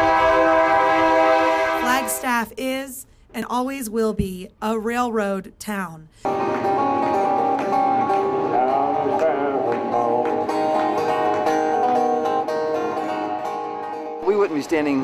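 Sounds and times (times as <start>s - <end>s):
wooden train whistle: 0.0s - 2.2s
strummed acoustic guitar: 6.2s - 15.0s.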